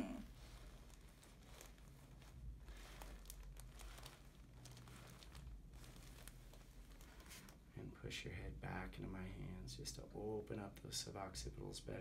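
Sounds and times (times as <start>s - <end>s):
clothing rustling and crinkling: 0.0s - 12.0s.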